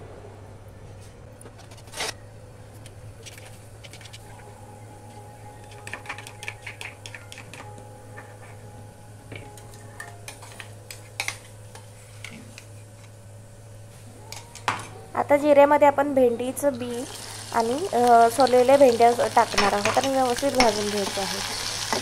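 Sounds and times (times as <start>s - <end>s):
steady low hum: 0.0s - 22.0s
seeds sizzling in hot oil: 16.8s - 22.0s.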